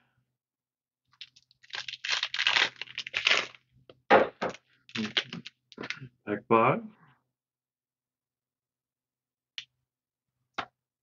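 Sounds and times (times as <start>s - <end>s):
foil wrapper crinkling: 1.2s - 3.6s, 4.9s - 5.9s.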